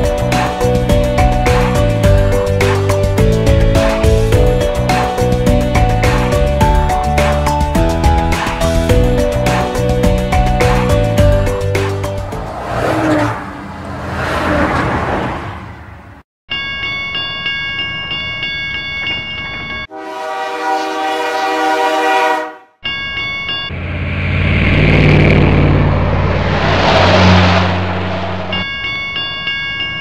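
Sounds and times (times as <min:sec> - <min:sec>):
train horn blasts: 0:19.9 - 0:22.8
train rumbling past: 0:23.7 - 0:28.8.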